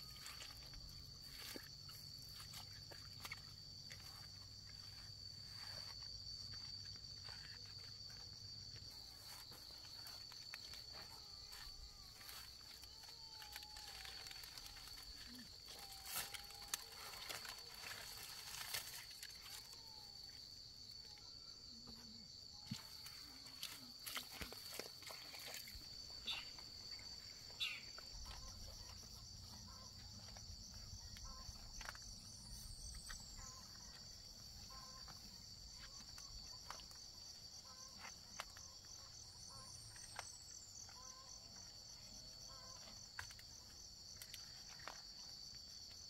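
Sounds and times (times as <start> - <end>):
high-pitched insect drone: 0.0 - 21.3
leaves rustling and snapping: 13.4 - 19.7.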